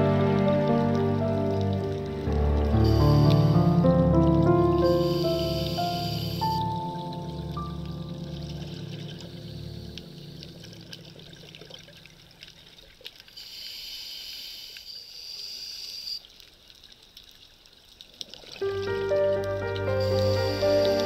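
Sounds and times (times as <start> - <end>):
music: 0.0 - 11.9, 18.6 - 21.0
faint watery trickling: 0.0 - 14.0, 15.5 - 21.0
high shimmering tone: 2.7 - 3.9, 4.8 - 7.8.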